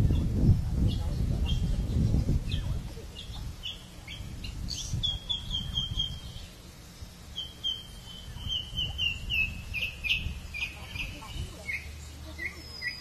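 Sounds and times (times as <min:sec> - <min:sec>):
bird calling high notes: 0:07.3 - 0:13.0.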